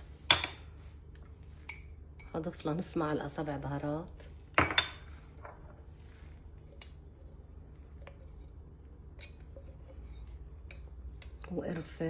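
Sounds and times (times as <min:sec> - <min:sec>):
kitchenware clinking: 0:04.5 - 0:05.8.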